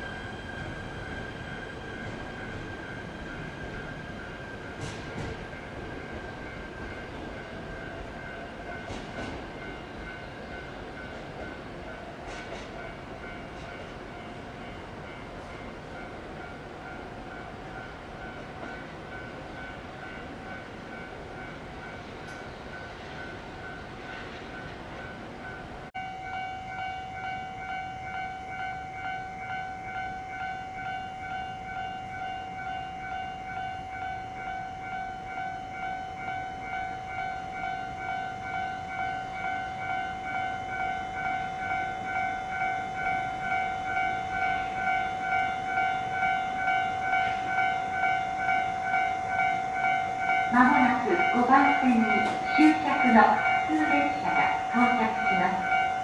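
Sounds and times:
pulsing railway warning alarm: 0:00.0 - 0:56.0.

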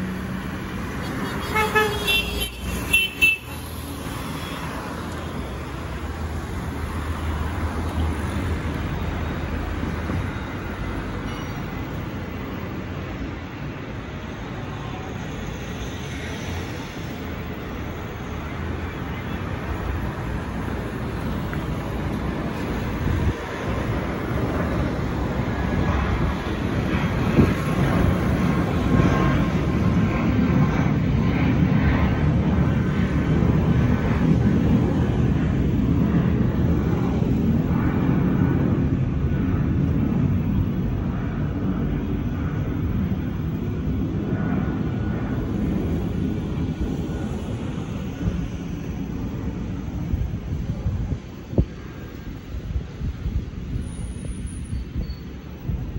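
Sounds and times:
jet airliner passing overhead: 0:00.0 - 0:55.9.

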